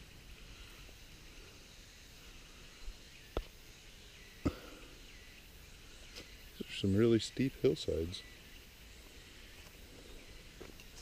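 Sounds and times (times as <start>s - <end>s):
steady high hiss: 0.0s - 11.0s
footsteps on a trail: 9.5s - 11.0s.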